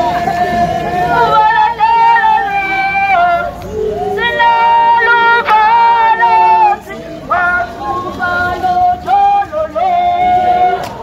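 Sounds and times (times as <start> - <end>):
person singing long held notes: 0.0 - 11.0.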